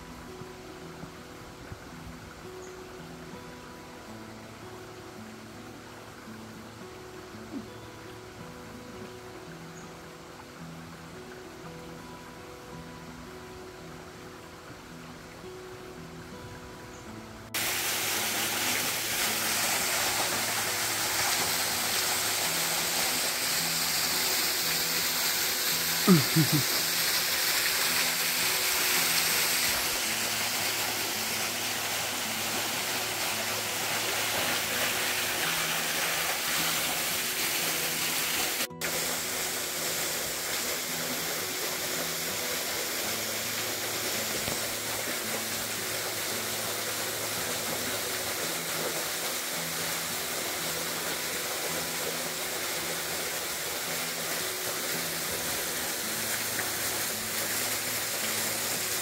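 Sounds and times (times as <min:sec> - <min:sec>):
soft music of low notes: 0:00.0 - 0:59.0
waterfall rushing: 0:17.5 - 0:59.0.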